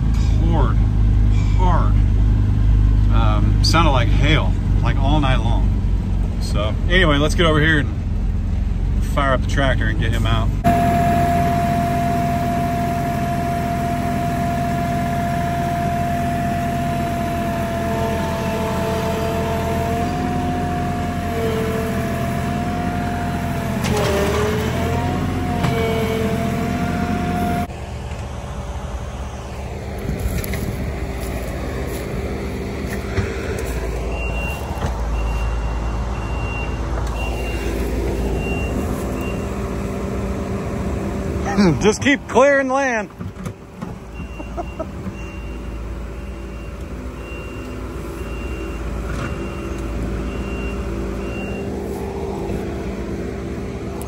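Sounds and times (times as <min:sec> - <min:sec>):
tractor diesel engine: 0:00.0 - 0:54.0
wavering whine: 0:10.6 - 0:22.5.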